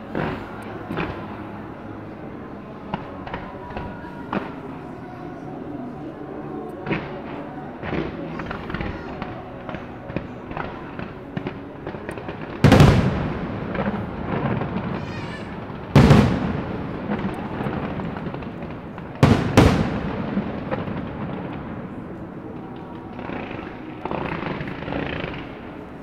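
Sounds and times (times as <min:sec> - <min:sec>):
fireworks crackling: 0:00.0 - 0:02.1, 0:02.8 - 0:04.9, 0:06.6 - 0:26.0
fireworks booming: 0:07.8 - 0:26.0.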